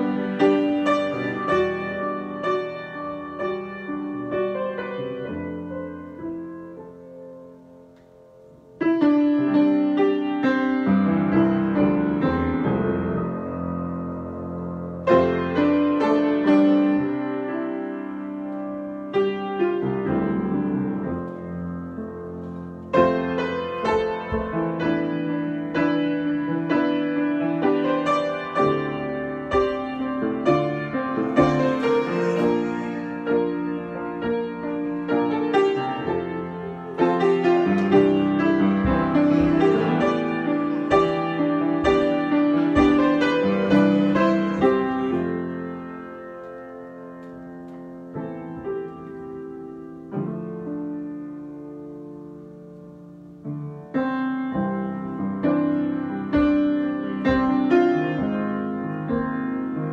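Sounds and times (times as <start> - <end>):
solo piano improvisation: 0.0 - 59.9.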